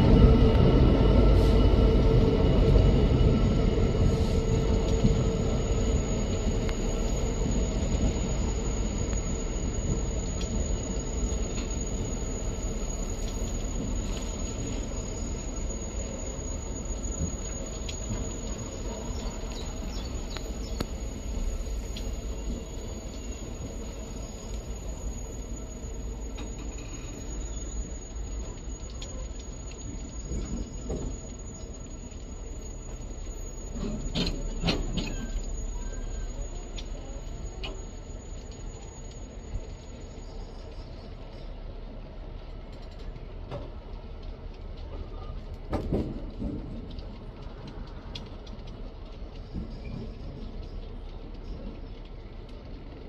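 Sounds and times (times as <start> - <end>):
train wheels rumbling on rails: 0.0 - 53.0
thin high wheel squeal: 22.2 - 40.6
short squeaks: 33.6 - 36.4.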